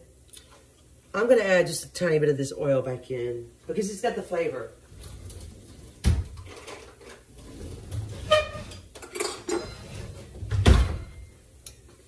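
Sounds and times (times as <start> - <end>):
dishes and utensils clinking: 8.7 - 9.9.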